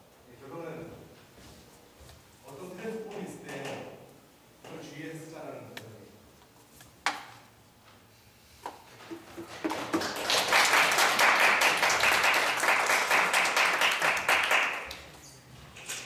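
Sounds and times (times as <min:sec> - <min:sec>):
audience applauding: 0:09.1 - 0:15.2.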